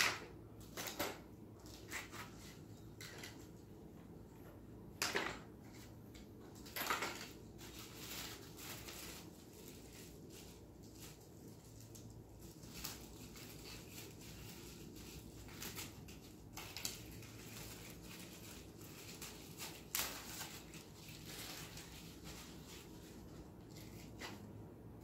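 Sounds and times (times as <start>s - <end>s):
packaging rustling: 6.6s - 24.6s.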